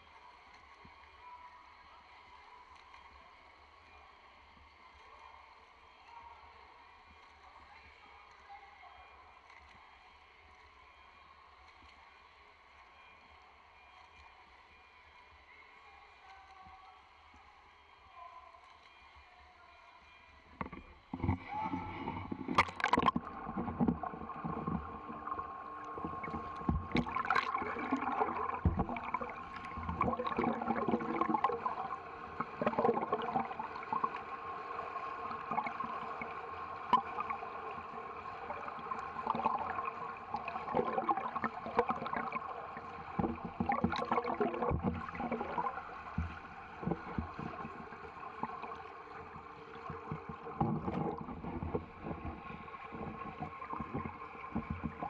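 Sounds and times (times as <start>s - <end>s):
underwater swimming strokes gurgling: 20.6s - 55.0s.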